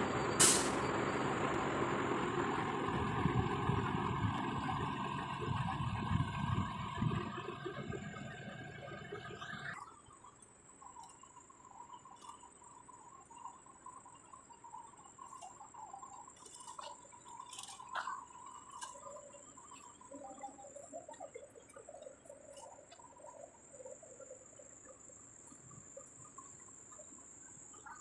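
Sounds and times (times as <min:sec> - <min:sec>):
insect-like drone: 0:01.8 - 0:28.0
faint chirps: 0:07.0 - 0:28.0.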